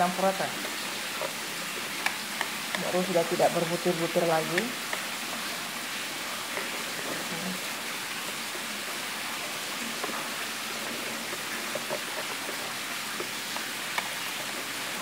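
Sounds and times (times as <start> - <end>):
whisk tapping bowl: 0.0 - 5.3, 6.5 - 15.0
whisk swishing in batter: 0.0 - 15.0.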